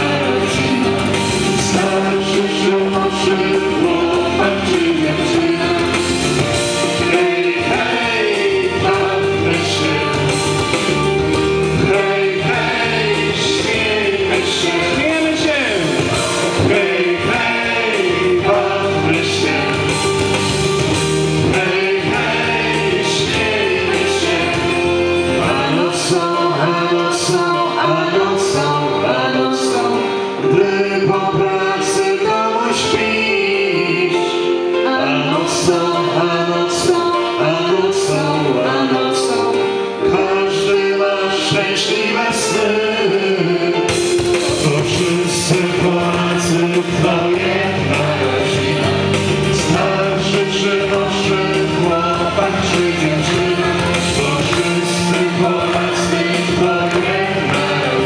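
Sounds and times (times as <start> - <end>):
electronic keyboard: 0.0 - 58.0
mixed group singing amplified: 0.0 - 58.0
regular beat: 0.1 - 26.5, 43.8 - 58.0.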